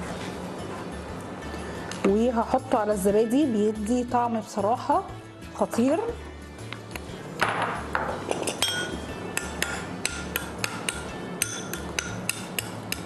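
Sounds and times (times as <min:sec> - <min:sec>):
light clinks against a bowl: 0:08.3 - 0:09.0.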